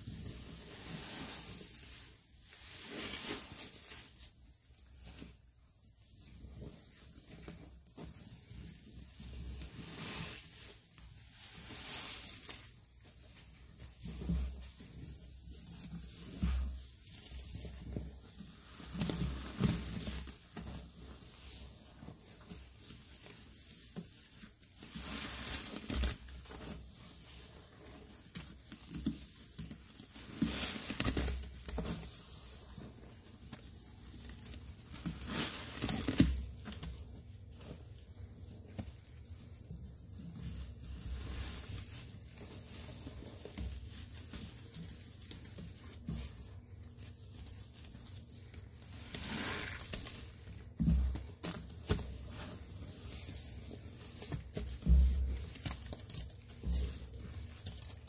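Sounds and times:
wet sponge squishes: 0.0s - 58.0s
foam crackling: 48.6s - 58.0s.

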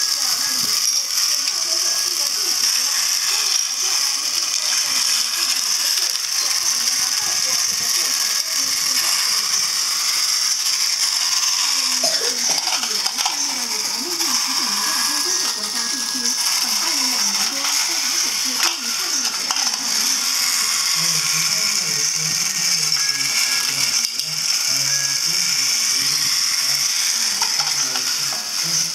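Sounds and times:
toy train motor whirring: 0.0s - 28.9s.

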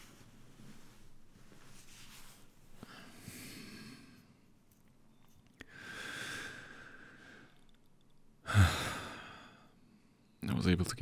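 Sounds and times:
man sighing: 8.4s - 9.7s.

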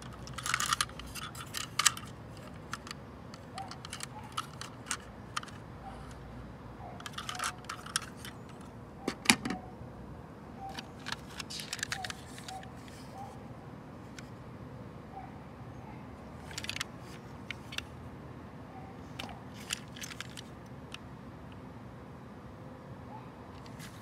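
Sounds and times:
plastic toy trucks clicking: 0.0s - 6.2s, 7.0s - 9.6s, 10.7s - 13.1s, 16.4s - 17.9s, 19.1s - 21.0s.

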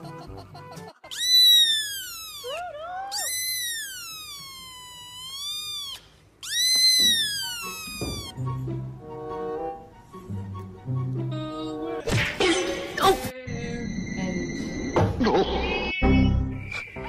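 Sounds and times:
kitten squeaks: 1.0s - 8.4s
kitten meowing loudly: 1.1s - 8.3s.

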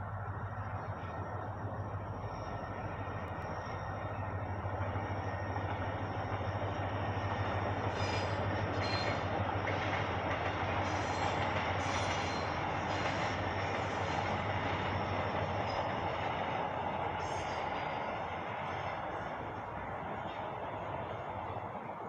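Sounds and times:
passenger train passing: 0.0s - 22.0s
high-pitched train squeals: 2.1s - 9.8s, 10.6s - 18.8s.

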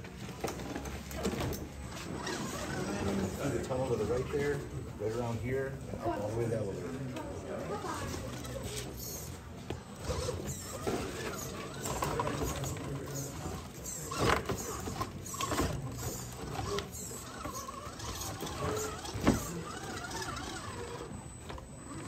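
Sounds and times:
electric motor whirring: 7.9s - 22.0s.

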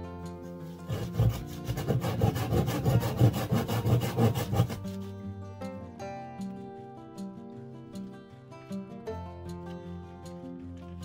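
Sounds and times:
acoustic guitar music: 0.0s - 11.0s
hand saw cutting wood: 0.6s - 5.1s.

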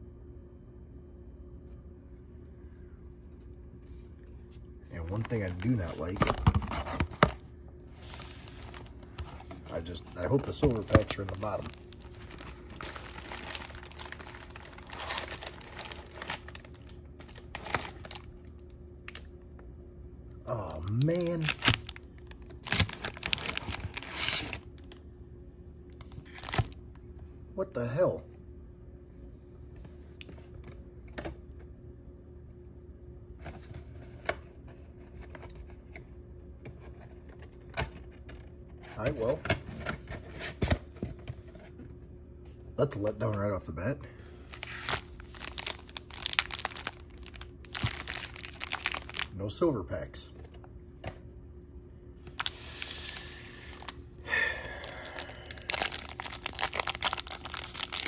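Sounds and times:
faint steady hum: 0.0s - 58.0s
wrappers crinkling and rustling: 4.9s - 7.3s, 8.0s - 19.3s, 20.8s - 25.0s, 26.0s - 26.8s, 44.5s - 49.4s, 52.3s - 54.0s, 54.6s - 58.0s
card packs clicking and tapping: 8.6s - 18.3s, 20.9s - 24.6s, 44.6s - 49.3s, 54.8s - 58.0s.

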